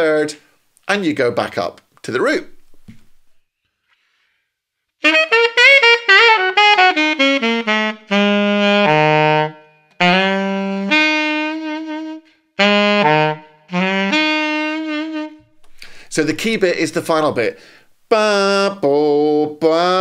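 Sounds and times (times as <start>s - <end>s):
alto saxophone blues lick: 5.0s - 20.0s.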